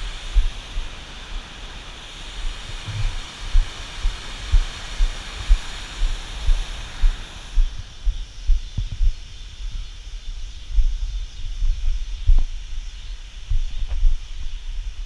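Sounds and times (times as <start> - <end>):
water rushing below dam: 0.0 - 8.0
low thumps: 2.7 - 9.8.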